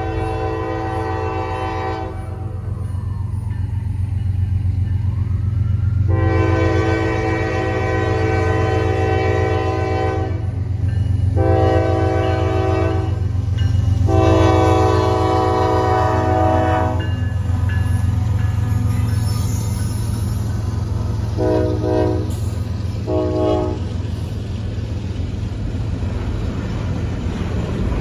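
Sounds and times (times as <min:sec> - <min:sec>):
locomotive air horn blasts: 0:00.0 - 0:02.5, 0:06.1 - 0:10.6, 0:11.3 - 0:13.3, 0:14.0 - 0:18.9, 0:21.4 - 0:22.4, 0:23.0 - 0:23.9
train rumble: 0:00.0 - 0:28.0.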